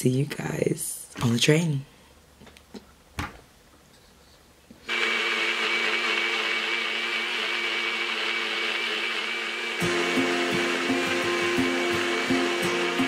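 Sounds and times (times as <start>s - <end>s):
blender motor running: 4.9s - 13.0s.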